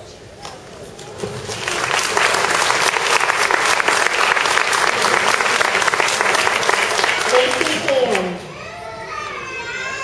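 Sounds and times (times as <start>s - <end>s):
audience applauding: 1.3s - 8.3s.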